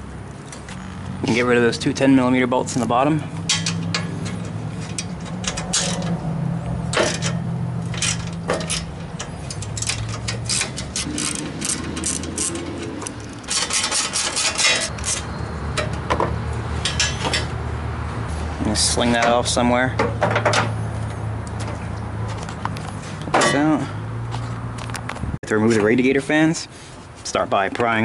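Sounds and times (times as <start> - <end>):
ratchet clicking: 6.9 - 15.9.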